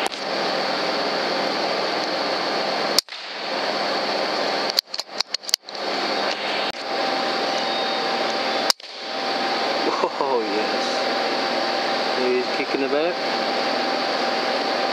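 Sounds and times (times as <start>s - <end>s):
air rifle shot crack: 3.0s - 3.6s, 8.7s - 9.2s
sharp clicks: 4.6s - 6.8s.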